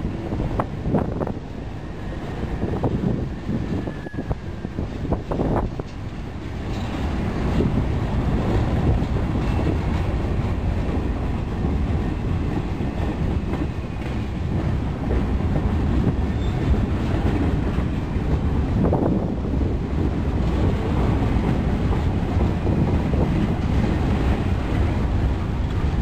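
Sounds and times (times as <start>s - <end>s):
train wheels rumbling on rails: 0.0s - 26.0s
clickety-clack: 4.9s - 7.8s, 8.4s - 26.0s
faint wheel squeals: 16.3s - 16.7s.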